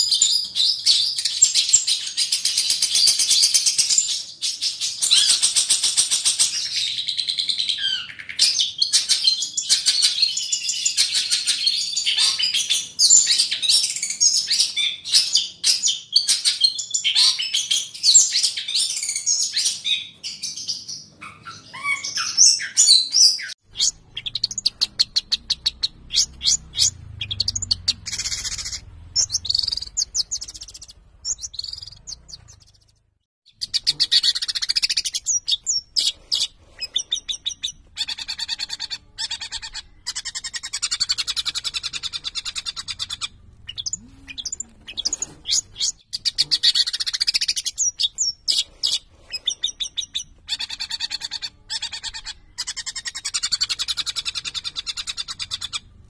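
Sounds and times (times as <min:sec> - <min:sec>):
bird chattering song: 0:00.0 - 0:56.0.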